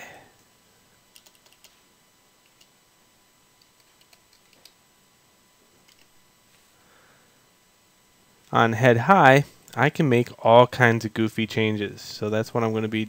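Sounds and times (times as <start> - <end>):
faint keyboard typing: 1.1 - 1.8, 2.4 - 2.8, 3.6 - 4.8, 5.8 - 6.2.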